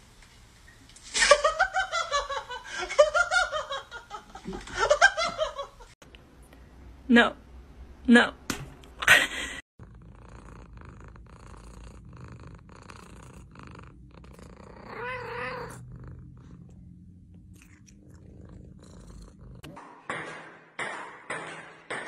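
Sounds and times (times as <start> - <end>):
cat purring: 9.8 - 19.7
cat wavering cry: 14.8 - 15.8.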